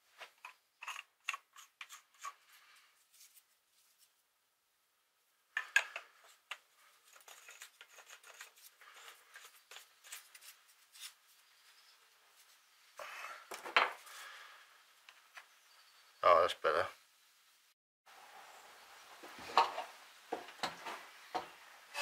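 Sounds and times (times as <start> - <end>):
faint scraping and rubbing: 0.0 - 4.2, 5.6 - 14.8
rustling: 0.0 - 4.3, 6.1 - 15.5.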